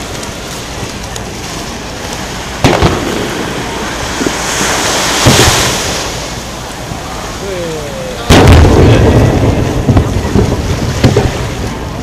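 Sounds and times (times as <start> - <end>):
fireworks bursting: 0.0 - 7.3, 8.1 - 12.0
crackling hiss: 0.0 - 12.0
low rumbling: 0.0 - 12.0
loud firework bang: 2.6 - 3.6, 4.2 - 6.1, 8.3 - 11.6.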